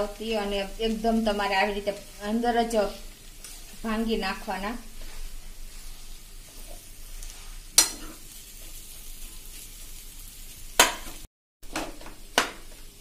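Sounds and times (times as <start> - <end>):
faint frying sizzle: 0.0 - 13.0
spoon scraping and clanking pan: 3.3 - 3.8, 5.0 - 9.6.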